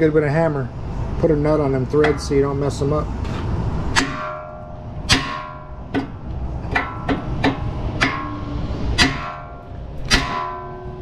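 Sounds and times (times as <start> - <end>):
hammer striking steel: 2.0 - 2.9, 3.9 - 11.0.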